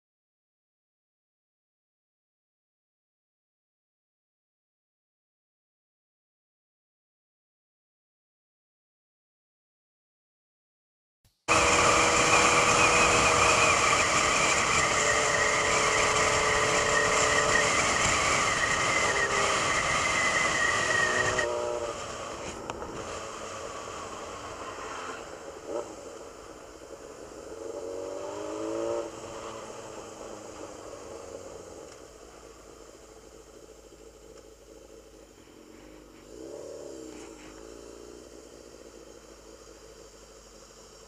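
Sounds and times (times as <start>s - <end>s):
motorcycle engine: 11.5s - 41.0s
wind and road noise: 11.5s - 41.0s.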